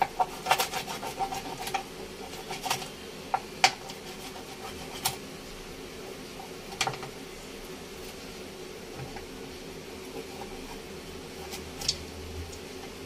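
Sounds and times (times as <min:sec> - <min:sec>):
knife scraping fish: 0:00.0 - 0:02.9, 0:03.8 - 0:05.2, 0:10.2 - 0:12.0
fan hum: 0:00.0 - 0:13.0.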